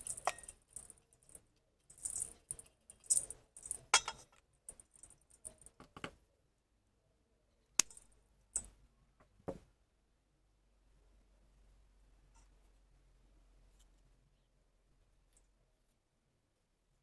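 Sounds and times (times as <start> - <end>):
soil pattering into metal bowl: 0.0 - 5.8.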